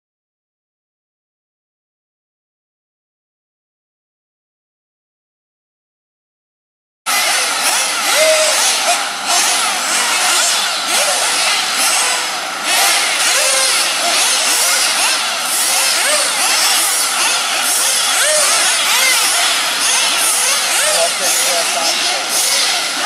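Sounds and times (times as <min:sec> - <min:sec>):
rc buggy engines whining: 0:07.1 - 0:23.0.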